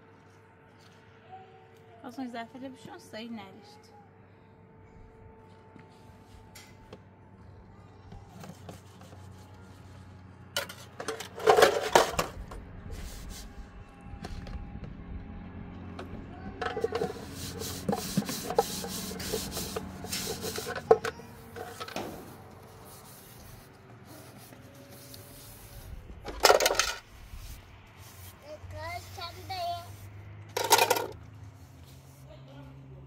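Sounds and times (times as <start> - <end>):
rubbing and scraping: 10.6 - 13.6, 16.6 - 32.3.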